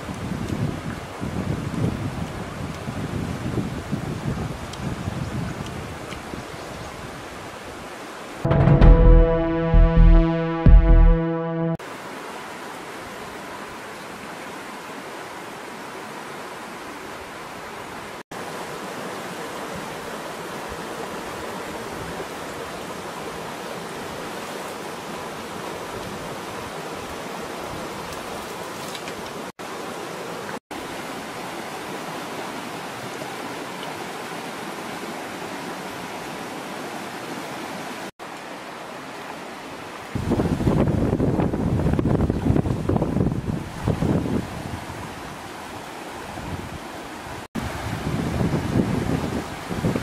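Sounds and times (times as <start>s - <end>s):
flowing stream rushing: 11.2s - 40.4s, 43.5s - 50.0s
wind buffeting microphone: 40.2s - 44.8s, 47.6s - 50.0s.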